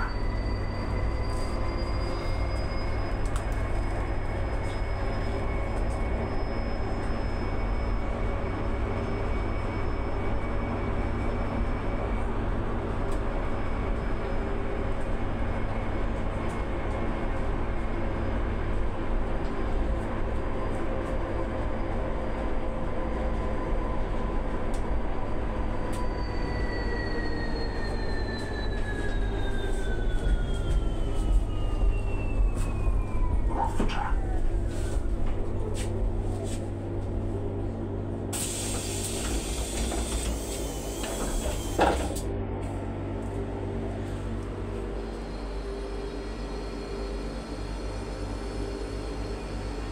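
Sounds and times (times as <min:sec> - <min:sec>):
bus interior hum: 0:00.0 - 0:49.9
compressed air hissing: 0:38.4 - 0:41.7.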